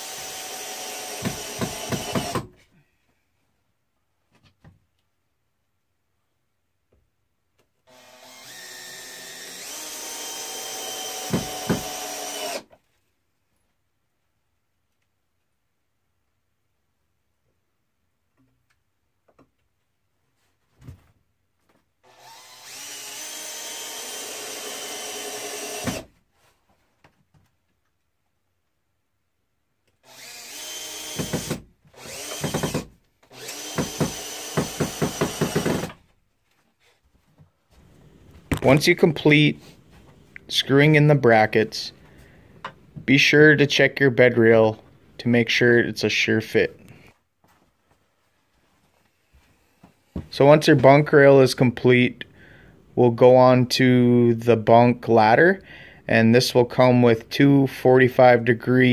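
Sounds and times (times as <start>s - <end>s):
cordless drill motor whining: 0.0s - 2.4s, 7.9s - 12.6s, 22.1s - 26.1s, 30.0s - 35.9s.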